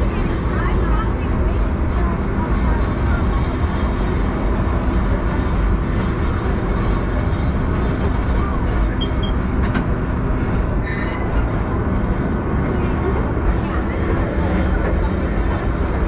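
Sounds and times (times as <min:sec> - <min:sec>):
train wheels rumbling: 0:00.0 - 0:16.0
short high squeaks: 0:10.8 - 0:11.3.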